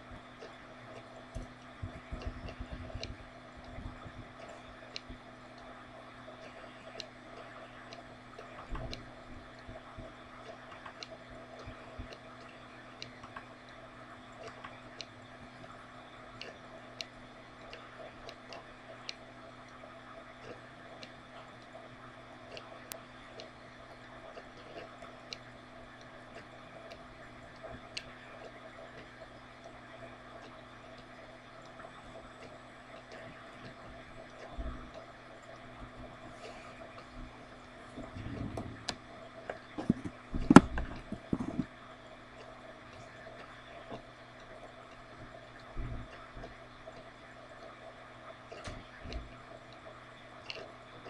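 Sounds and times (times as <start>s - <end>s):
low room hum: 0.0s - 51.0s
faint regular ticks: 0.2s - 37.8s.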